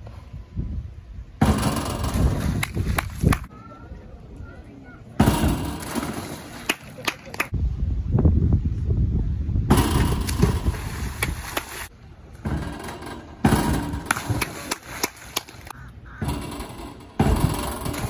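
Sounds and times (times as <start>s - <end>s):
voices: 3.2s - 7.6s, 14.3s - 17.0s
splashes of divers: 14.1s - 15.7s.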